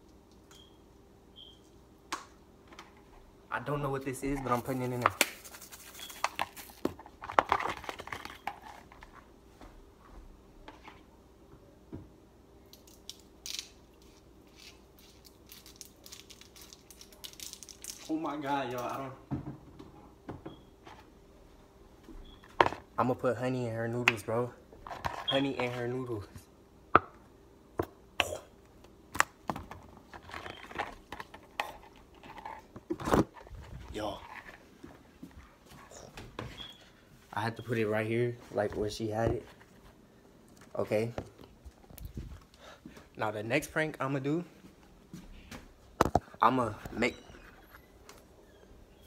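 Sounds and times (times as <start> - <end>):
faint steady hum: 0.0 - 49.0
food containers being handled: 4.3 - 9.3, 24.8 - 26.0, 29.2 - 35.0.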